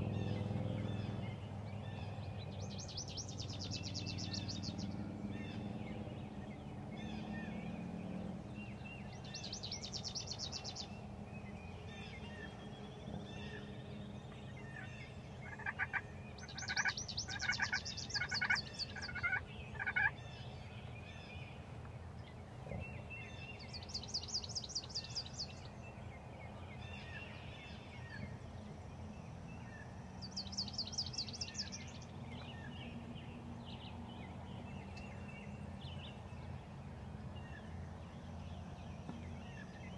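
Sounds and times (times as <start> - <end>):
songbird trilling: 0.1 - 5.7, 8.6 - 20.3, 22.9 - 26.0, 29.6 - 33.0
turkey yelps: 15.6 - 16.0, 16.6 - 20.1.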